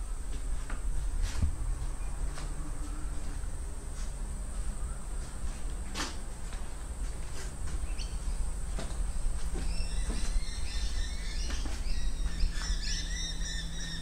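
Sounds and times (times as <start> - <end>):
birds chirping: 7.8 - 8.5, 9.5 - 14.0.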